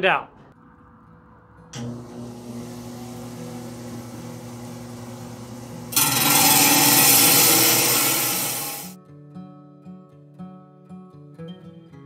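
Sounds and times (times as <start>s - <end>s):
saw motor humming: 1.8s - 9.0s
saw blade grinding stone: 5.8s - 9.0s.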